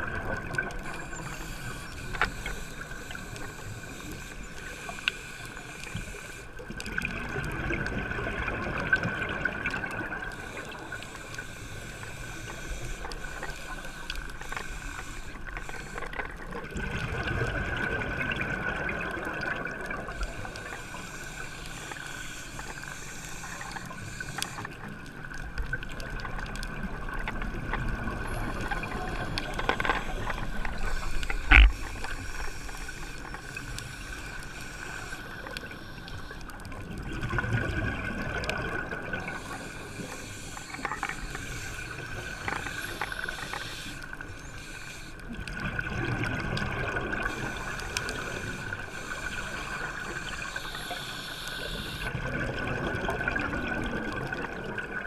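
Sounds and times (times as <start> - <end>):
diver breathing through regulator: 10.3 - 16.5, 39.1 - 45.3, 47.2 - 52.1.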